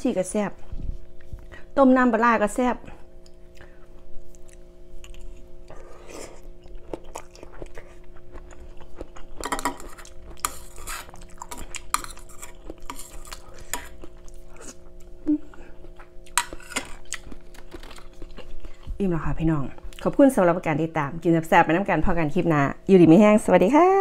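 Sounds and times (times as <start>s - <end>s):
person chewing: 3.2s - 19.0s.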